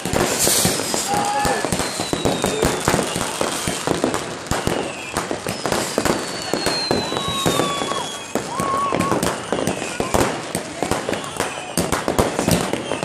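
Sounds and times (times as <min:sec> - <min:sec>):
fireworks bangs and crackles: 0:00.0 - 0:13.0
falling high whistle: 0:00.4 - 0:03.9, 0:04.5 - 0:10.1.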